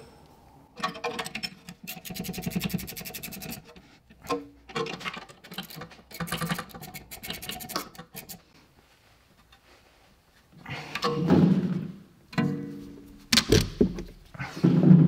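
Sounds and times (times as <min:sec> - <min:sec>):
ratcheting wrench clicking: 0:05.5 - 0:08.4.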